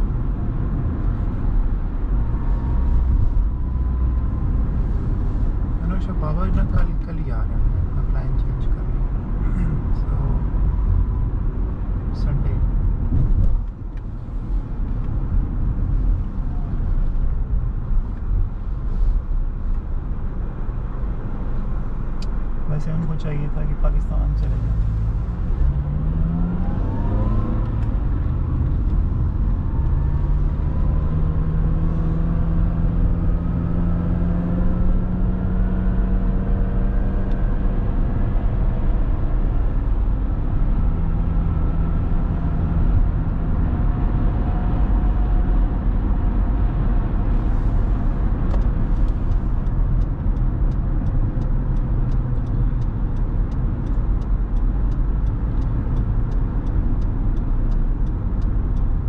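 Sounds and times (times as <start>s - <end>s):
car engine: 0.0s - 59.0s
road rumble: 0.0s - 59.0s
light regular ticking: 48.3s - 59.0s.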